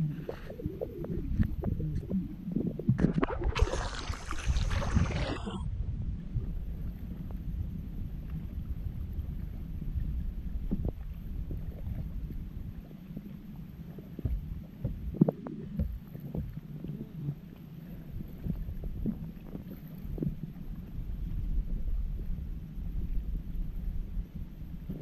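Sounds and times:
low rumble of gliding kayak: 0.0 - 25.0
paddle splashing water: 3.0 - 5.6.

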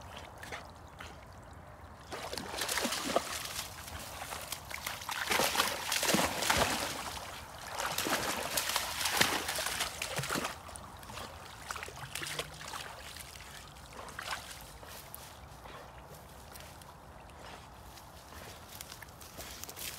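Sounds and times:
dogs splashing in water: 2.0 - 15.0.

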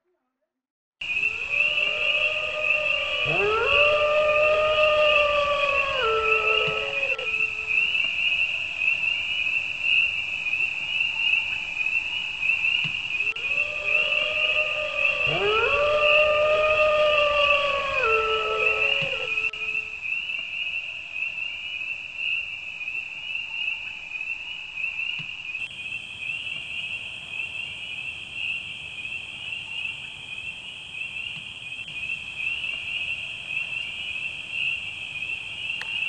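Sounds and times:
drawn-out howl: 1.0 - 8.9, 13.2 - 20.0
crickets chirring: 1.0 - 36.0.

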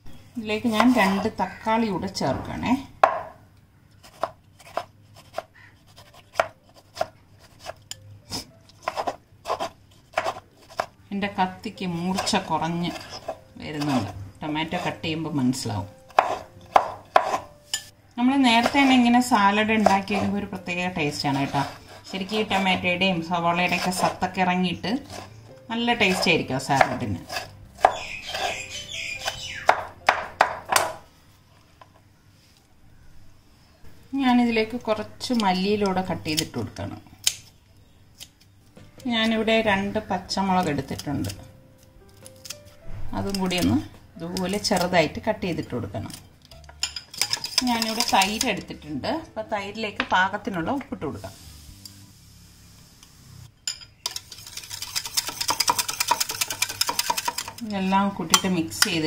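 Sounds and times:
knife chopping on a wooden board: 4.1 - 7.7, 8.8 - 10.9, 16.1 - 17.5, 26.8 - 28.6.

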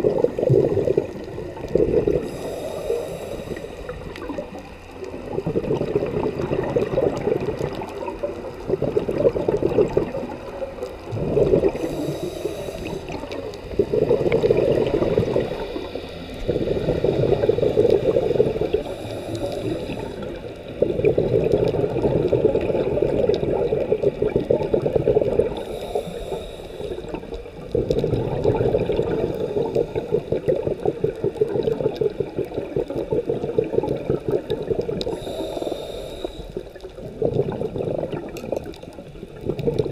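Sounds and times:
bubbling exhalations underwater: 0.0 - 2.8, 3.5 - 25.8, 27.1 - 35.5, 36.6 - 39.9
regulator hissing inhalations: 2.2 - 4.2, 11.7 - 13.5, 15.2 - 20.4, 25.6 - 27.4, 35.1 - 36.8.

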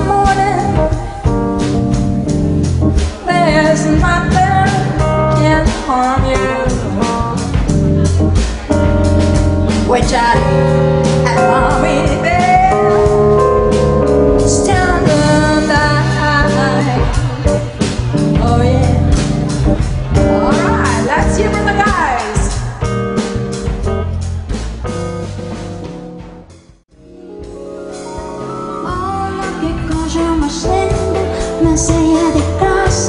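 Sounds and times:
woman singing into a microphone: 0.0 - 1.4, 3.2 - 7.2, 9.8 - 13.2, 14.4 - 17.7, 18.3 - 19.4, 28.8 - 33.0
upright double bass: 0.0 - 26.8, 28.4 - 33.0
drum kit: 0.0 - 33.0
electronic keyboard: 0.0 - 33.0.

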